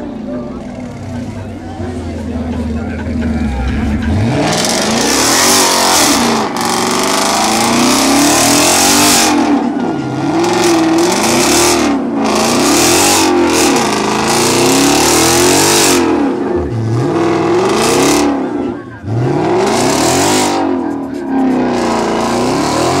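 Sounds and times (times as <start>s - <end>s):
car engine revving: 0.0s - 23.0s.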